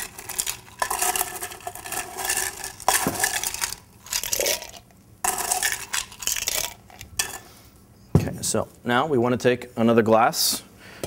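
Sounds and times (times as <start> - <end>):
ice cubes clinking: 0.0 - 7.4.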